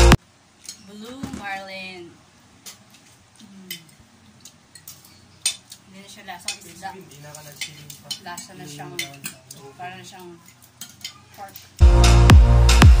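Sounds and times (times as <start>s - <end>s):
cutlery clinking on plates: 0.6s - 1.1s, 3.7s - 11.8s.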